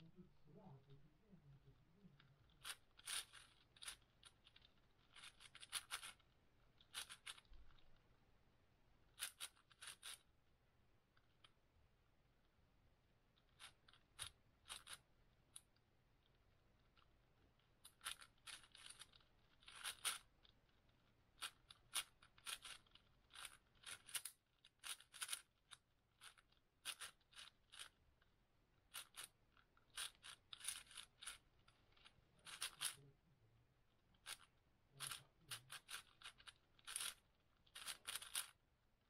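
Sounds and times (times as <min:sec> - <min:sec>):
puzzle cube layers clicking: 0:02.1 - 0:08.0, 0:09.1 - 0:10.3, 0:13.4 - 0:28.0, 0:28.9 - 0:33.1, 0:34.1 - 0:38.6.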